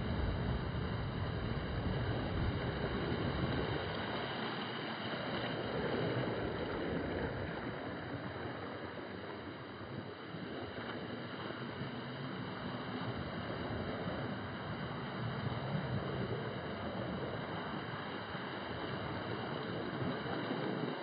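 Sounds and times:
surf washing on beach: 0.0 - 21.0
wind on microphone: 0.0 - 21.0.

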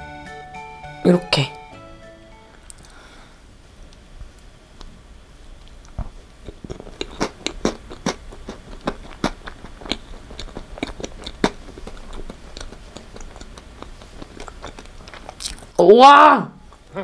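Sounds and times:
chewing cake: 5.6 - 15.8
wet mouth clicks and smacks: 5.7 - 15.7.

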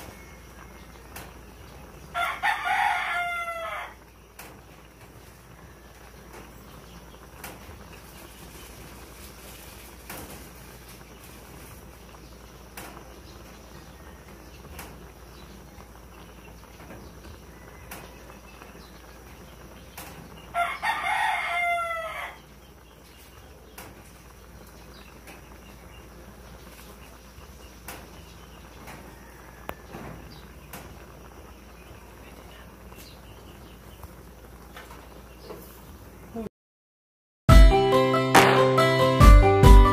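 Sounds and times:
rooster crowing: 0.0 - 1.2, 2.1 - 4.0, 17.3 - 18.4, 20.5 - 22.4, 28.8 - 30.3.

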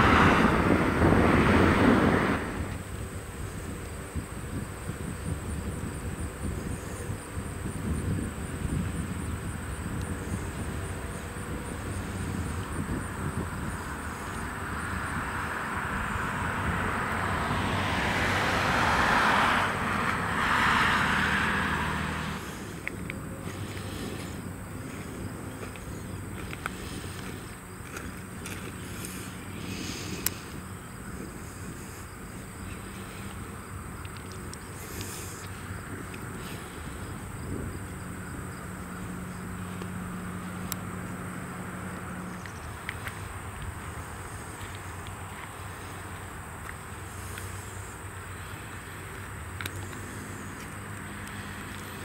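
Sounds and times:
broad rushing noise: 0.0 - 4.2, 8.2 - 52.0
diesel locomotives idling: 0.0 - 5.0, 6.1 - 52.0
high insect drone: 0.0 - 52.0
low engine hum: 0.0 - 52.0.

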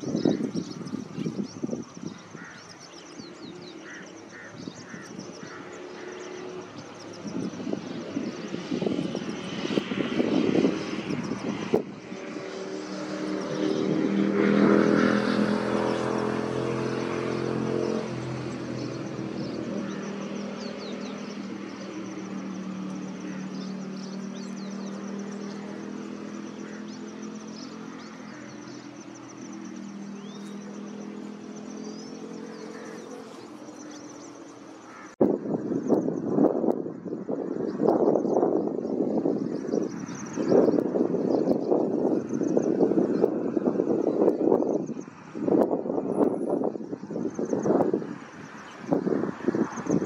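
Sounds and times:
aircraft engine drone: 0.0 - 50.0
high bird chirps: 18.8 - 35.2.

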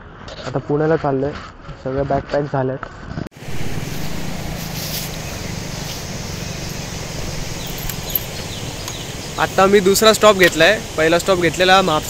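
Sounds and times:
vehicle engine droning: 3.4 - 12.0.

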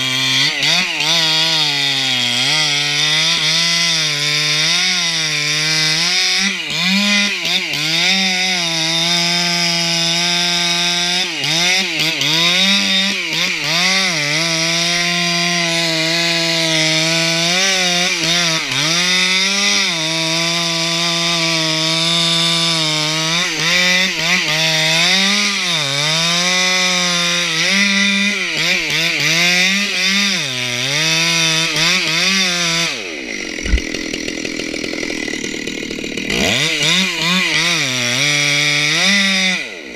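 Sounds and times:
chainsaw cutting wood: 0.0 - 39.9
sharp knock: 33.5 - 34.2.

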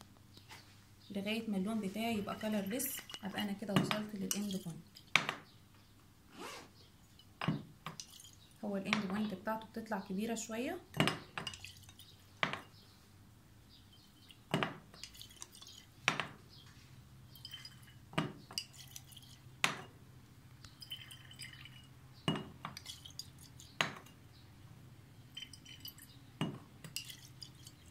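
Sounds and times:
glass flask clinking: 17.3 - 19.9, 20.7 - 24.2, 25.3 - 27.9.

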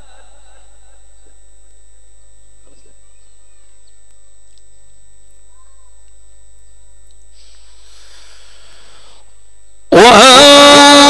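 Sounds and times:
faint distant voices: 0.0 - 9.9
electrical hum of pa system: 0.0 - 11.0
breath close to microphone: 7.3 - 9.4.

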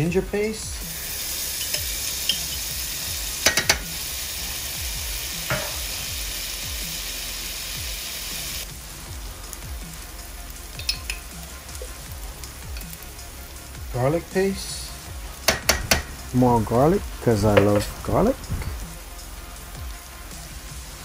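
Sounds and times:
onions sizzling in a pan: 0.0 - 21.0
utensil tapping against pan: 3.4 - 3.9, 15.5 - 16.1.

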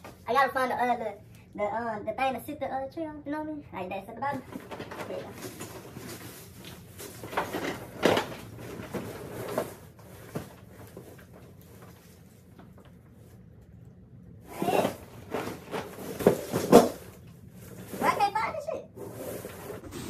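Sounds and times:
plastic bag rustling and crinkling: 4.4 - 13.4.

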